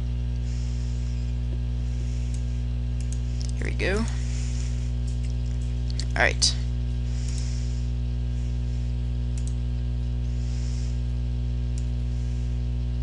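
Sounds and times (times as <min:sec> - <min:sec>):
electrical mains hum: 0:00.0 - 0:13.0
computer mouse clicks: 0:09.4 - 0:09.6.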